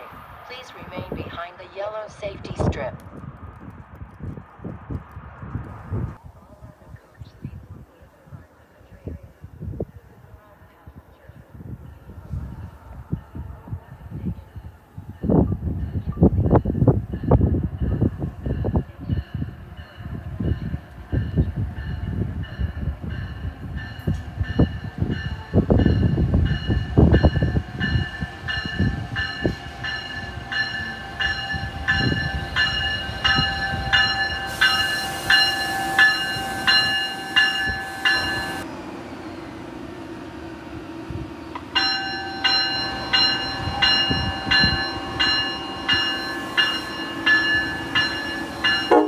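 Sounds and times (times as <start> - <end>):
locomotive bell ringing: 14.6 - 39.5, 41.6 - 49.0.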